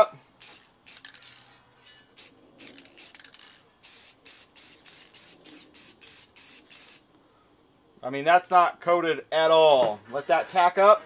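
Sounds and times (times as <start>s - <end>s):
spray paint can hissing: 0.4s - 7.1s.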